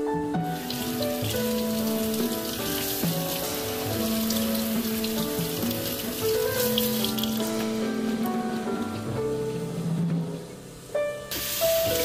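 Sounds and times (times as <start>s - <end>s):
background music of held notes: 0.0s - 12.0s
tap water splashing into strainer: 0.5s - 7.6s.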